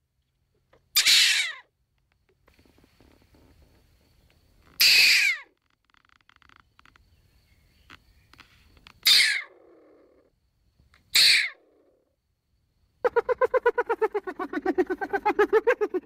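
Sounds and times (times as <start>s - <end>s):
stone marten screaming: 1.0s - 1.6s, 4.8s - 5.5s, 9.0s - 9.6s, 11.1s - 11.7s, 13.0s - 16.0s
faint ticks: 5.6s - 7.1s, 7.8s - 9.0s.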